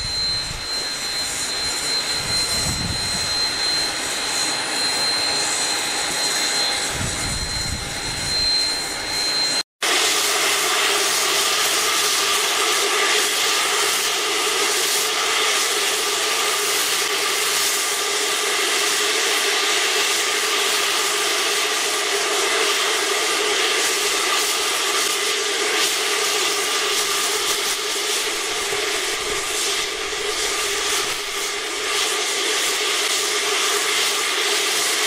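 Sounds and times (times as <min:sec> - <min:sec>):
steam hissing from locomotive: 0:09.4 - 0:35.0.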